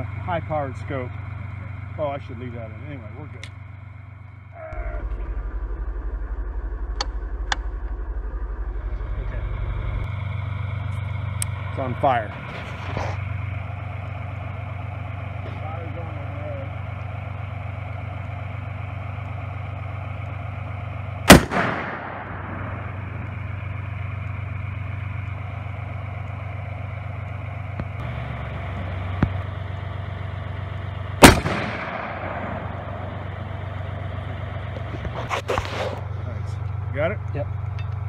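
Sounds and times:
rifle shots with echo: 21.3 - 23.0, 31.2 - 33.1.

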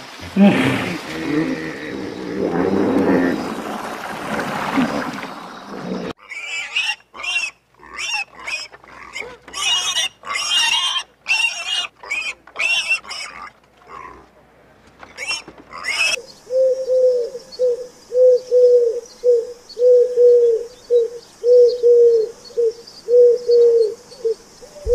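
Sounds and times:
piglets squealing and grunting: 6.2 - 14.2, 15.1 - 16.2
dove cooing: 16.0 - 24.9.

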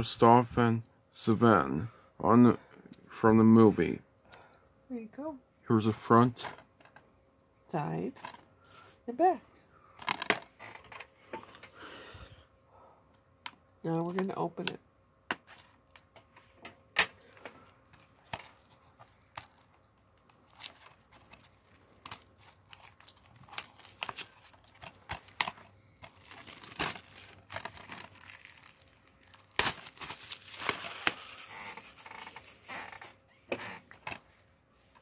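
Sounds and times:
plastic shrink-wrap crinkling and tearing: 18.6 - 33.1.

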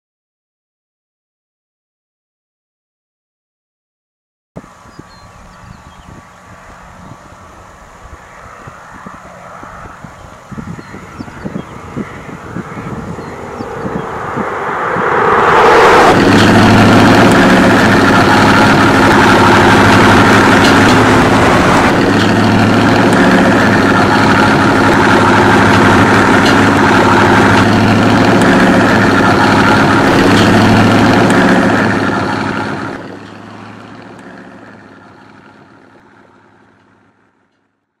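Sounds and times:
motor running with low hum: 4.8 - 14.4.

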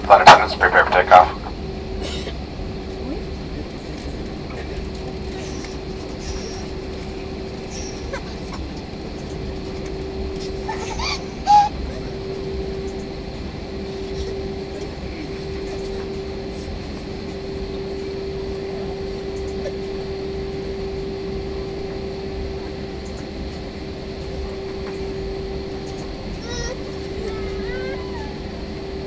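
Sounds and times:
aircraft cabin rumble: 0.0 - 29.0
constant hum: 0.0 - 29.0.

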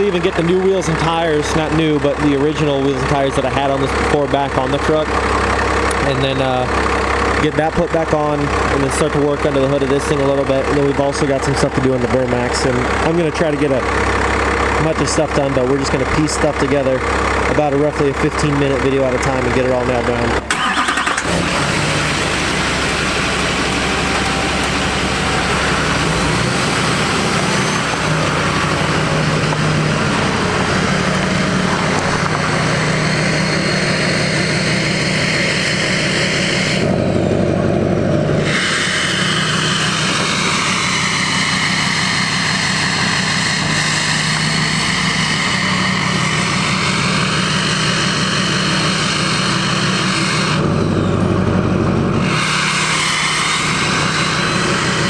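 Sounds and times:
diesel truck exhaust drone: 0.0 - 55.0
high whine changing pitch: 19.8 - 55.0.

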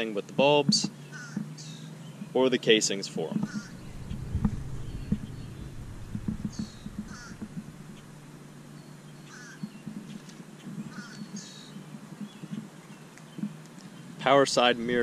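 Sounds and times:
short bird calls: 3.5 - 8.3.

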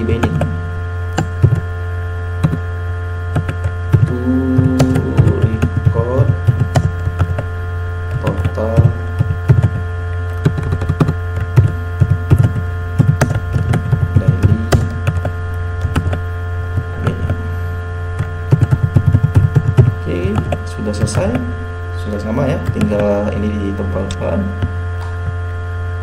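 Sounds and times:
loud electrical hum: 0.0 - 26.0
keyboard keys clicking: 1.2 - 1.6, 2.4 - 2.6, 3.3 - 4.1, 9.2 - 16.2, 18.2 - 21.2.

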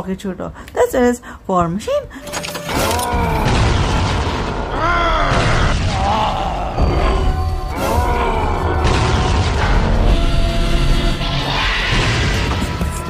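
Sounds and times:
booming impacts: 3.1 - 13.0.

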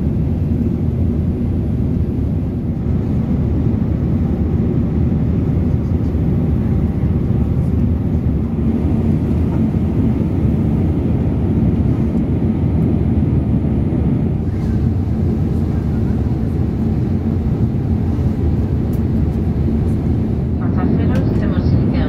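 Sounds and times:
airplane cabin rumble: 0.0 - 22.0.

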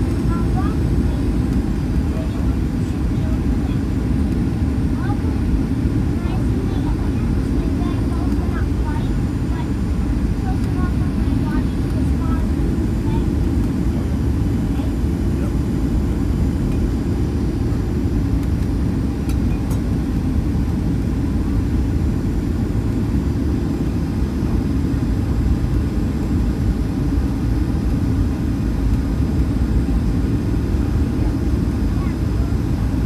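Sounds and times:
airliner cabin engine rumble: 0.0 - 33.0.

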